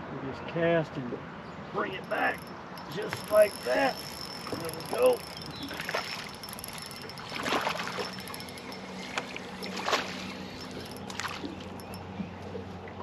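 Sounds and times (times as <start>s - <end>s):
waves lapping against boat hull: 2.0s - 13.0s
soft water splashes: 8.9s - 13.0s.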